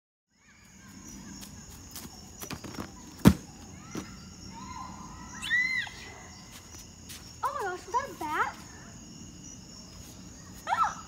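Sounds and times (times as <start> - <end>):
faint high insect-like tone: 0.3 - 11.0
thump of landing on a mat: 2.6 - 4.1.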